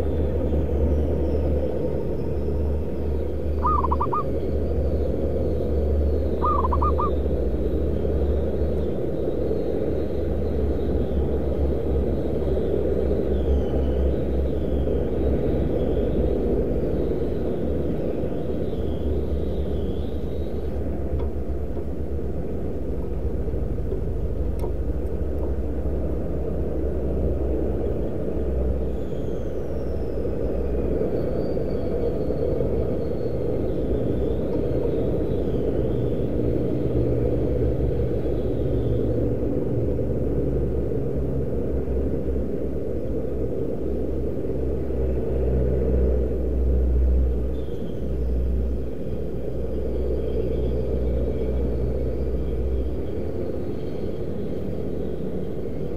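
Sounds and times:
steady low rumble: 0.0 - 55.9
high wavy bird calls: 3.2 - 7.9.

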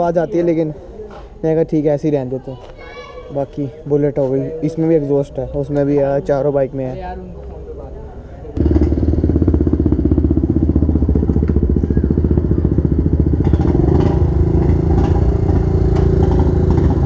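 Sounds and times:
motorcycle engine pulsing rumble: 8.6 - 17.0
smoother second engine: 8.6 - 17.0.

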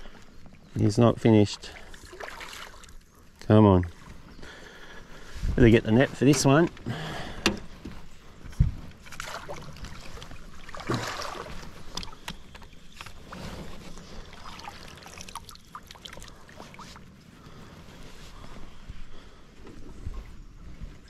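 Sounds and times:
light knocks and clicks of gear: 6.1 - 9.0, 11.8 - 13.2.

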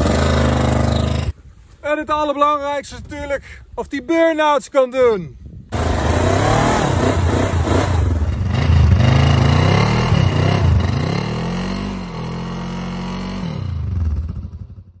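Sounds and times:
motorcycle engine revving: 0.0 - 1.3, 5.7 - 15.0.

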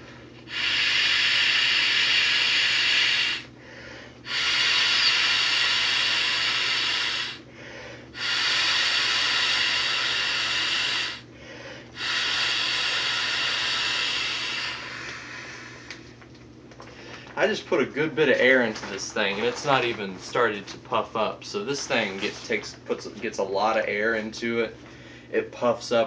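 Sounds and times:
person breathing in: 0.0 - 16.2, 24.8 - 25.3
person blowing into a valve: 0.5 - 3.5, 4.2 - 7.4, 8.1 - 11.2, 12.0 - 15.9.

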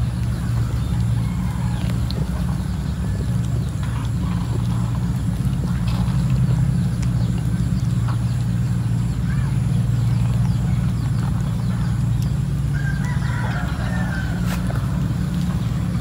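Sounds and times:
low mechanical hum: 0.0 - 16.0
faint ticks: 11.9 - 12.5.

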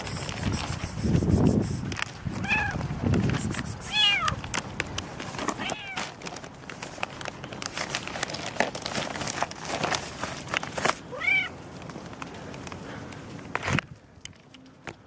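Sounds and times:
cat meowing: 2.4 - 2.8, 3.9 - 4.4, 5.6 - 6.0, 11.1 - 11.6
plastic bag crinkling: 4.3 - 12.5.

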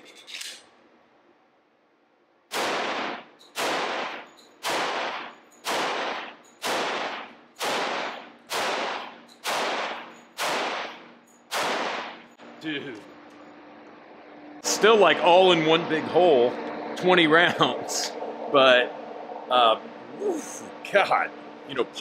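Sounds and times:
gunshots echoing indoors: 2.5 - 12.4.

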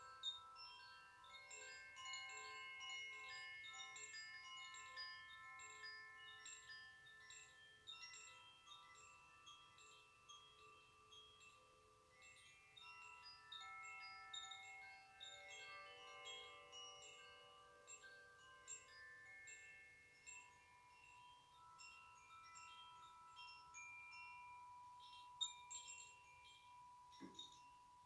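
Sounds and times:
hand chimes ringing: 0.0 - 28.0.

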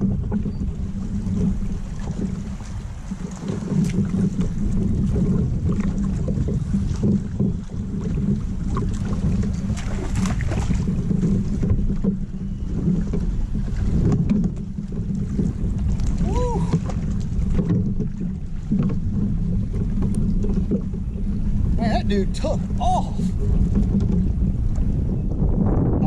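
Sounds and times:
water lapping at a hull: 0.0 - 26.0
wind on microphone: 0.0 - 26.0.

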